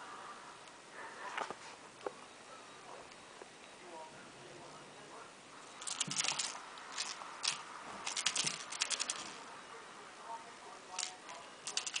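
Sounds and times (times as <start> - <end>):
kitten claws clicking on tile: 5.8 - 9.3, 11.0 - 12.0.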